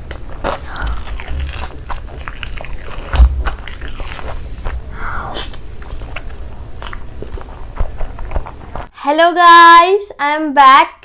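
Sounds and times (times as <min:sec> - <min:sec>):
close-miked chewing: 0:00.0 - 0:08.9
low thump: 0:03.1 - 0:03.5.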